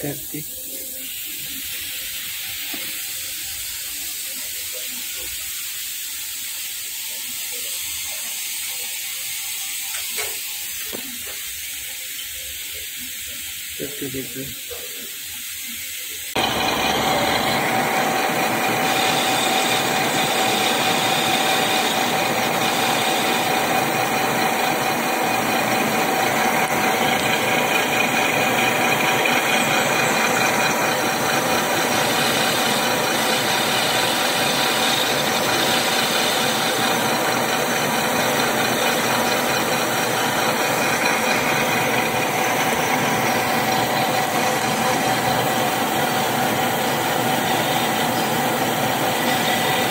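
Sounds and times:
metal lathe running: 0:16.3 - 0:49.9.

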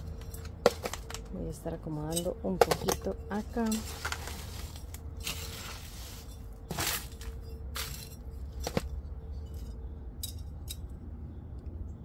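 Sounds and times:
scoop scraping gritty soil: 0:02.0 - 0:08.9
hand spreading soil: 0:03.4 - 0:07.9.

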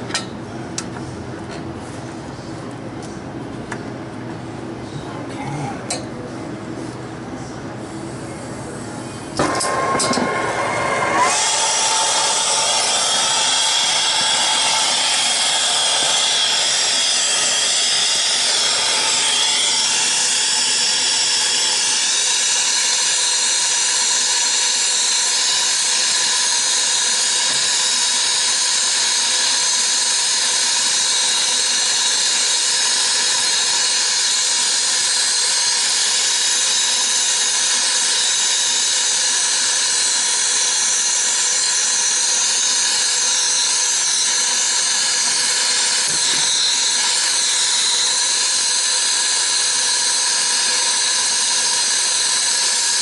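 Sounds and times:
gas hissing: 0:07.8 - 0:53.0.

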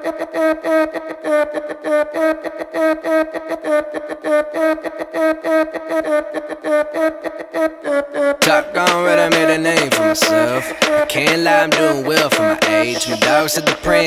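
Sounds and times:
hip hop beat with looping melody: 0:08.4 - 0:14.0.

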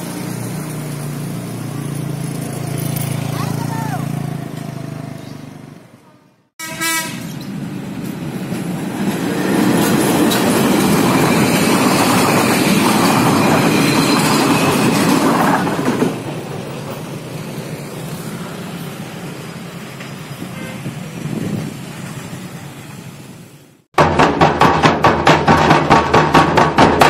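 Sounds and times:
scooter engine: 0:00.0 - 0:05.9
horn blast: 0:06.6 - 0:07.3
train wheels clattering on rails: 0:07.5 - 0:17.4.

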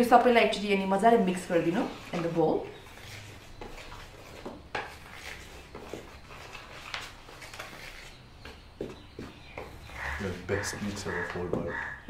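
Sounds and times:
flour rustling: 0:01.6 - 0:08.3.

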